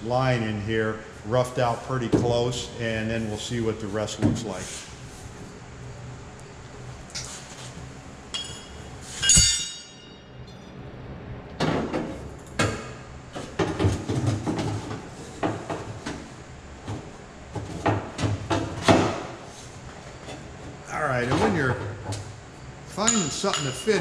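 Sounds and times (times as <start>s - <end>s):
loud ringing metal clink: 8.3s - 10.7s, 23.0s - 24.0s.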